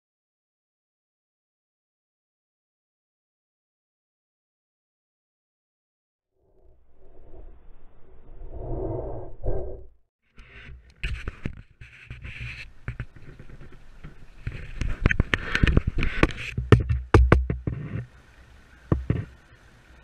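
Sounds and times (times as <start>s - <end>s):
wind rumble on microphone: 6.5s - 9.9s, 10.6s - 18.2s
swishing water hiss: 12.2s - 16.6s, 17.7s - 20.0s
sharp knocks and taps: 12.9s - 18.1s, 18.9s - 19.3s.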